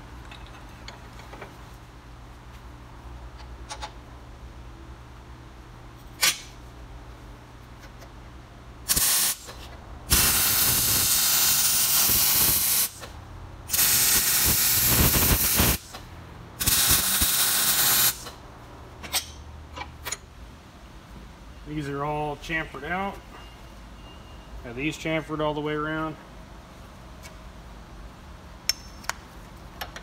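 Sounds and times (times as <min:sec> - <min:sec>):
arc welder frying hiss: 0:08.9 - 0:13.1, 0:13.7 - 0:16.0, 0:16.6 - 0:18.4.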